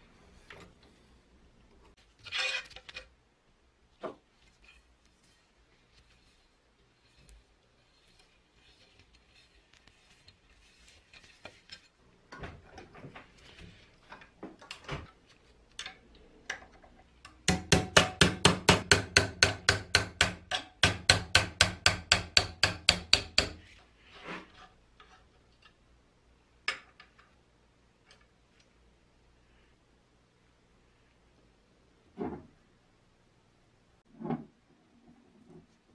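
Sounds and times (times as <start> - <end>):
hammer tapping on wrench: 17.3 - 23.6.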